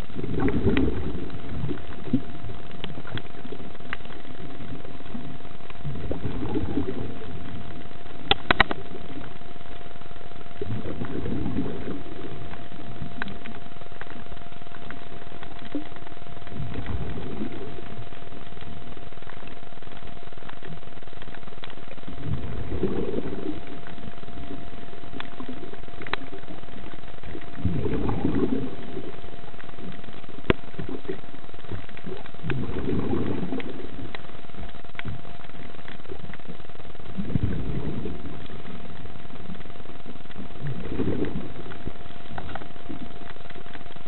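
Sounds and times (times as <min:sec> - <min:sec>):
exhaled breath bubbling underwater: 0:00.0 - 0:02.4, 0:04.8 - 0:07.7, 0:10.6 - 0:13.4, 0:16.5 - 0:18.1, 0:22.1 - 0:24.7, 0:27.4 - 0:30.0, 0:32.0 - 0:34.2, 0:37.1 - 0:38.8, 0:40.4 - 0:42.0
steady hiss: 0:00.0 - 0:44.0
thin constant tone: 0:00.0 - 0:44.0
sharp clicks: 0:08.2 - 0:08.8.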